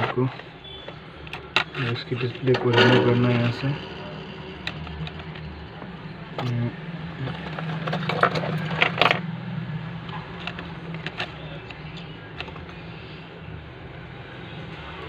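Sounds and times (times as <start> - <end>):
steady low hum: 2.5 - 7.2.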